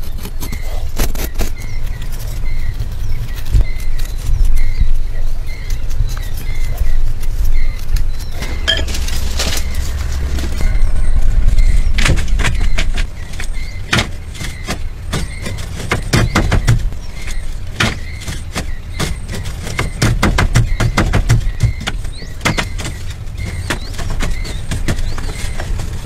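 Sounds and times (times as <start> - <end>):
low rumble: 1.9 - 15.0.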